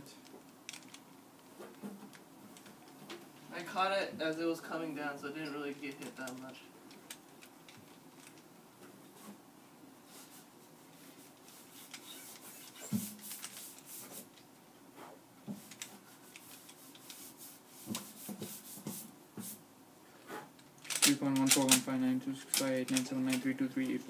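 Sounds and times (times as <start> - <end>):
puzzle cube clicking and scraping: 0.7 - 1.0, 20.8 - 24.0.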